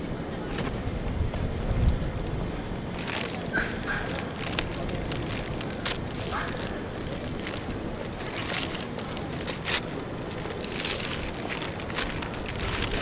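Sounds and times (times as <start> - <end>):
paper wrapping crinkling: 2.8 - 13.0.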